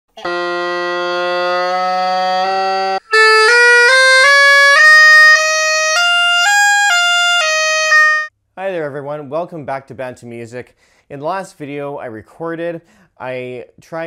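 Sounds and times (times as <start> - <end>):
bagpipe chanter notes: 0.1 - 8.3
bagpipes playing with drones: 0.2 - 8.3.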